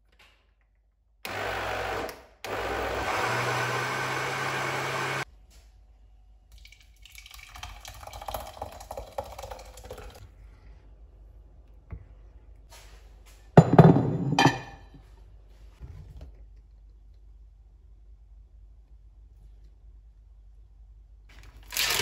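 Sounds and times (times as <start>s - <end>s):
blender motor running: 1.3s - 5.2s
thick puree pouring into saucepan: 6.5s - 10.2s.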